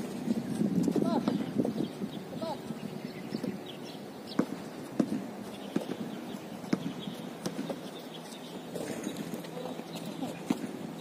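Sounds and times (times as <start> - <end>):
basketball bouncing on hard court: 4.3 - 6.0, 6.6 - 7.8.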